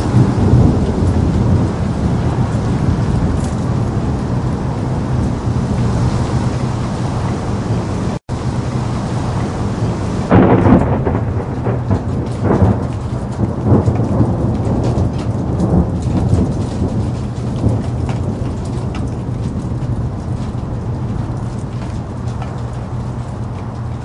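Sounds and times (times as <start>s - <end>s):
steady rain: 0.0s - 24.0s
thunder rolling: 0.0s - 24.0s.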